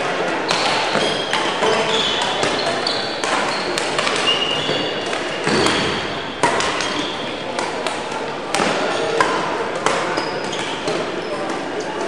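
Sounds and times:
sports hall noise: 0.0s - 12.0s
shoes squeaking on floor: 0.5s - 7.5s, 10.0s - 12.0s
racket hitting shuttlecock: 0.5s - 11.7s.

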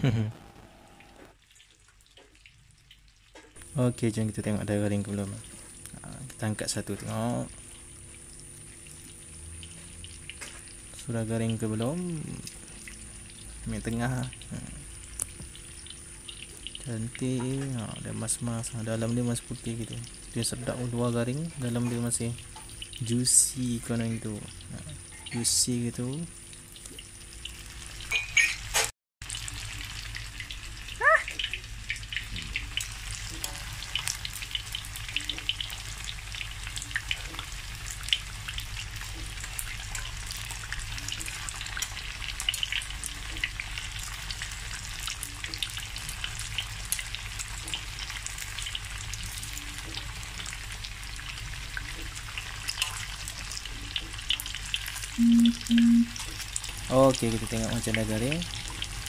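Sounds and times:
tofu sizzling in hot oil: 11.9s - 55.2s, 56.2s - 59.0s.

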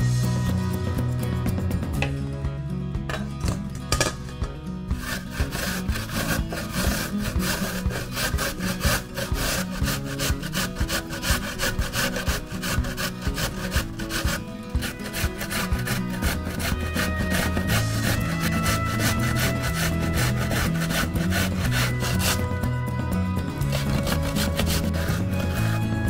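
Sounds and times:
grating on metal grater: 4.9s - 22.8s, 23.4s - 26.0s.

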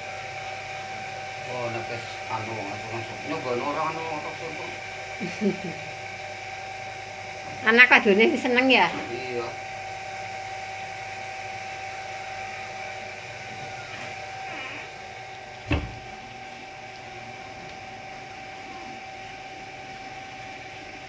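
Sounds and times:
steady background hum: 0.0s - 21.0s
sharp thump: 15.7s - 16.0s.

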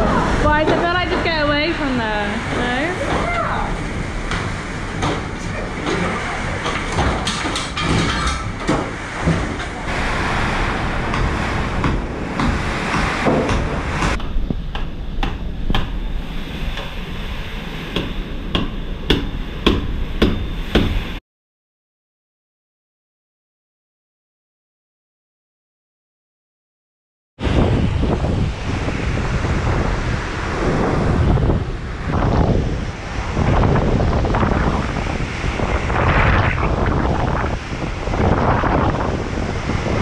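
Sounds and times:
wind and rain battering house: 0.0s - 21.2s, 27.4s - 40.0s
knocks and bangs: 2.4s - 10.0s, 11.0s - 16.0s, 17.9s - 21.1s.

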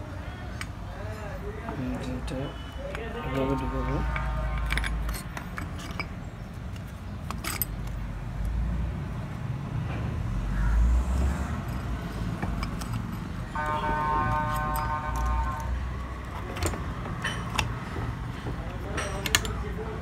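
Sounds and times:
light metallic clicks and clinks: 4.6s - 8.5s, 16.3s - 19.8s.

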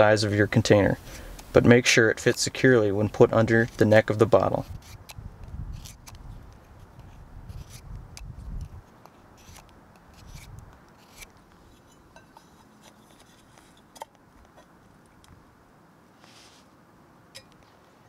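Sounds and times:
knife scraping wood: 2.1s - 14.7s.

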